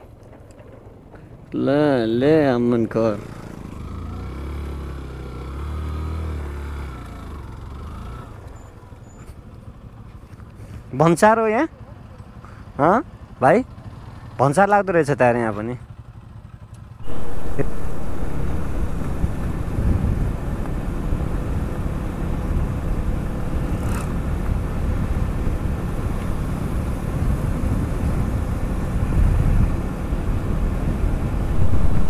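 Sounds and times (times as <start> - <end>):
road and wind noise: 0.0 - 32.0
vehicle engine running: 15.8 - 32.0.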